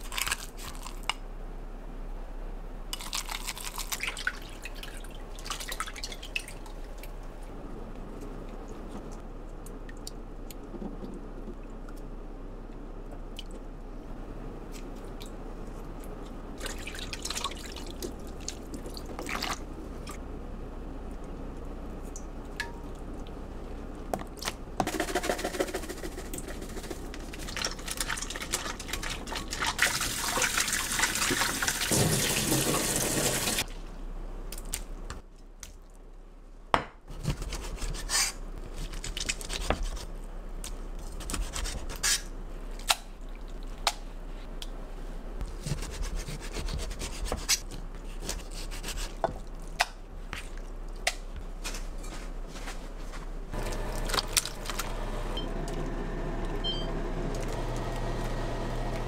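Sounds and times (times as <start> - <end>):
water running and dripping: 27.4 - 33.6.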